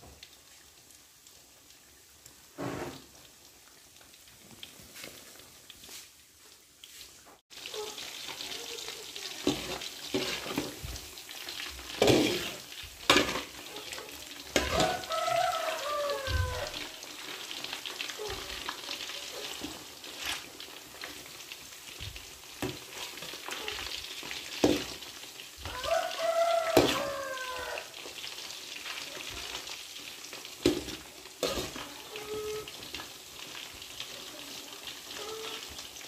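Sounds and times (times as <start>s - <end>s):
meat sizzling in hot oil: 0.0s - 36.0s
metal skimmer scraping pan: 12.0s - 13.6s, 30.7s - 31.8s.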